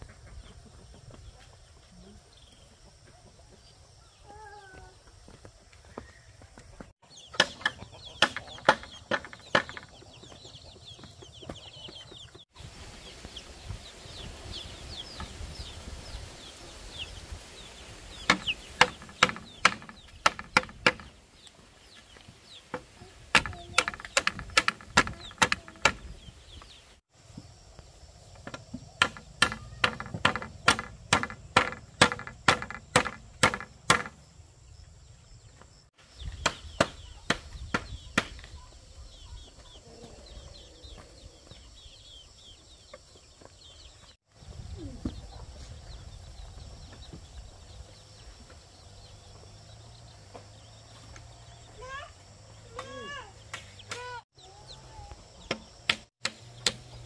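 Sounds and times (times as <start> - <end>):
high bird chirps: 7.0 - 27.0
tool strikes on wood: 7.4 - 10.0, 18.3 - 21.1, 22.7 - 26.0, 28.4 - 34.2, 36.3 - 38.5, 55.5 - 57.0.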